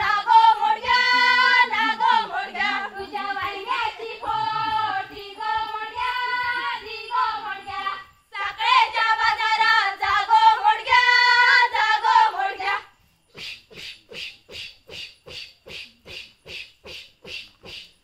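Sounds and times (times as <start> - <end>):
women singing in unison: 0.0 - 12.9.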